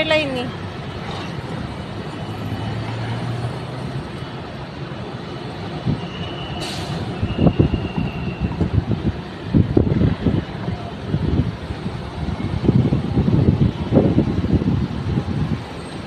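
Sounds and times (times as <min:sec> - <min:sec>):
ground vehicles: 0:00.0 - 0:16.0
jet airliner taxiing: 0:05.9 - 0:09.6
wind buffeting microphone: 0:06.9 - 0:16.0.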